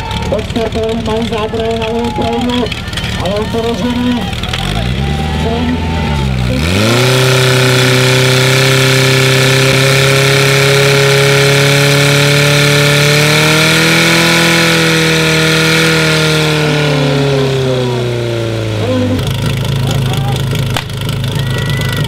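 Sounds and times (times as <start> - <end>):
pump engine running at high revs: 0.0 - 22.0.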